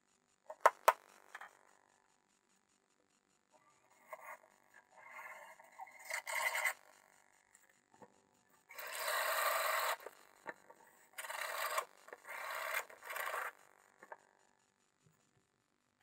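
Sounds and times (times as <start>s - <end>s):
drill circle cutter scraping sheet: 4.0s - 7.0s, 8.7s - 13.6s.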